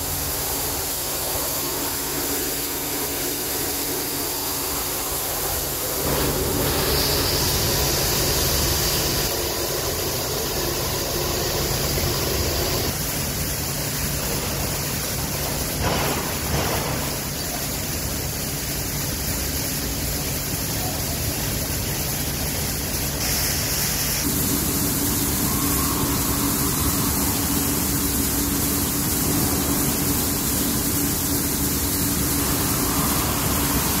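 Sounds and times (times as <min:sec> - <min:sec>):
dryer blowing air: 0:00.0 - 0:13.0, 0:23.2 - 0:34.0
low mechanical hum: 0:00.0 - 0:34.0.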